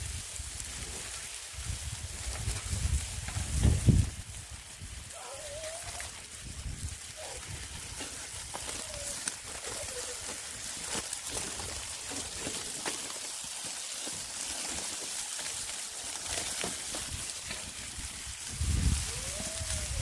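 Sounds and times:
meat sizzling on grill: 0.0s - 20.0s.

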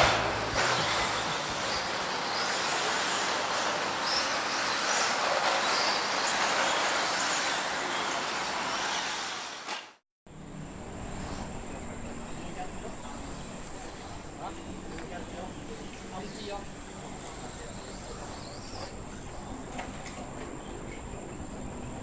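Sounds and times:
rc car tyres and drivetrain rushing: 0.0s - 9.9s.

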